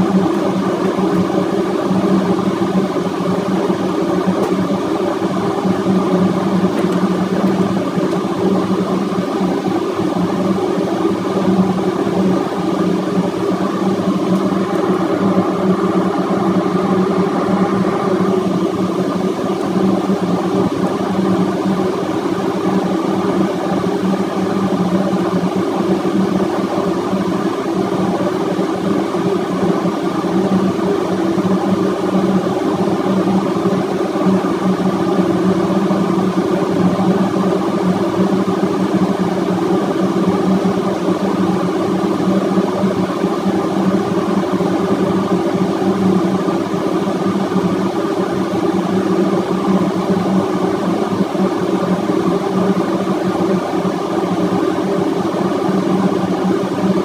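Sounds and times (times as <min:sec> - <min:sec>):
engine room machinery drone: 0:00.0 - 0:57.0.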